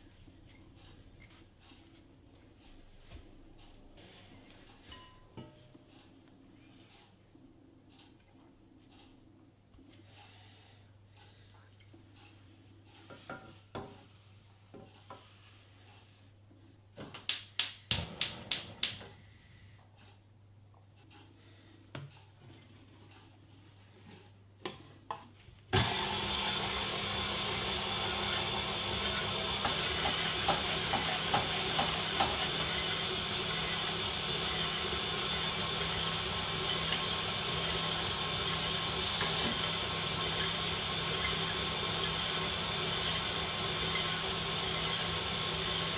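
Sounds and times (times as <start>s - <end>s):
stand mixer whisking: 25.8s - 45.9s.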